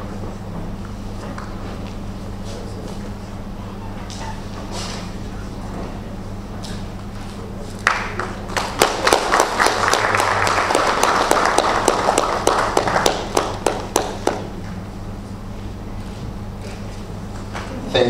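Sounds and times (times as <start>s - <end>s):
audience applauding: 7.8s - 14.5s.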